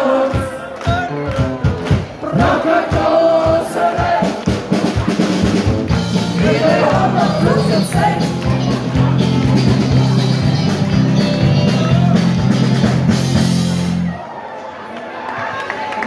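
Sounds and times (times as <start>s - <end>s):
drum kit: 0.2s - 14.1s
live band playing: 0.2s - 14.2s
rhythmic bass line: 0.3s - 14.1s
person singing: 6.2s - 12.4s.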